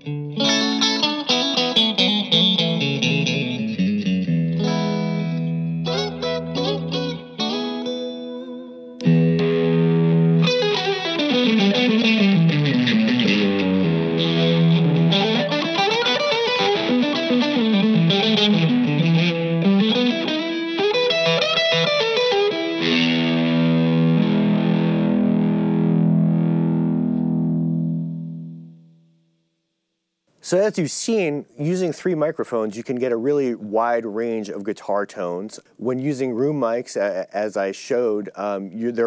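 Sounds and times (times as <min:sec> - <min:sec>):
electric guitar through an amp: 0:00.0 - 0:28.9.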